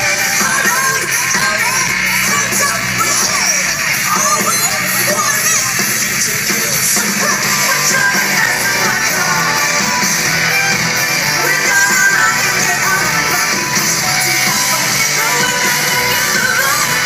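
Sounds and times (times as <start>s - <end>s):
electric guitars: 0.0s - 17.0s
rock band playing live: 0.0s - 17.0s.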